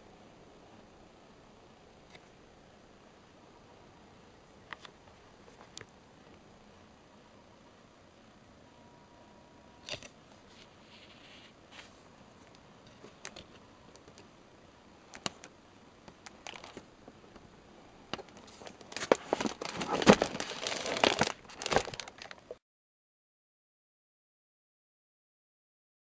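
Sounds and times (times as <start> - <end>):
book pages turning: 18.2 - 22.4
paper rustling and crinkling: 18.2 - 22.6.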